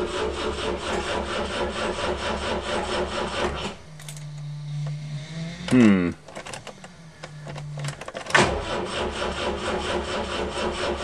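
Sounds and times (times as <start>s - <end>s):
electric fuel pump buzz: 0.0s - 11.0s
starter cranking engine: 5.6s - 11.0s.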